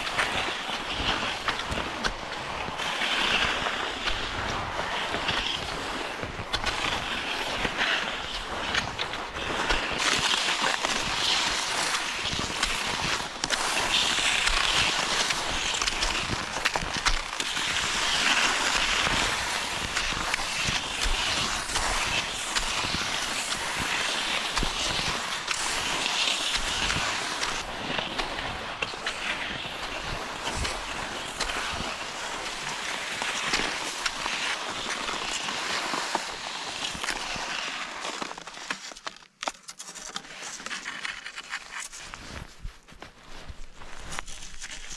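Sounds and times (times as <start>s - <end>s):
skis scraping over snow: 0.0s - 44.9s
sharp clicks and crunches: 8.3s - 29.2s, 30.4s - 42.5s, 43.8s - 44.9s.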